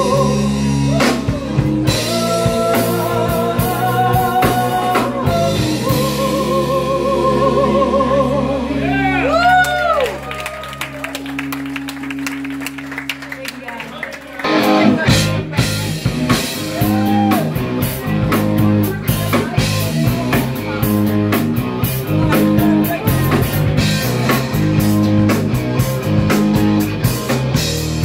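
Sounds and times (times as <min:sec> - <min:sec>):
drum kit steady beat: 0:00.0 - 0:07.3, 0:14.4 - 0:28.0
woman singing into microphone: 0:00.0 - 0:08.8
electric guitars: 0:00.0 - 0:28.0.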